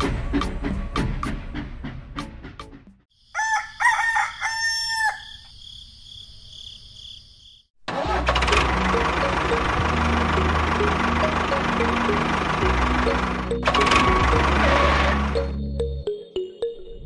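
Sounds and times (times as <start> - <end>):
rooster crowing: 3.2 - 5.5.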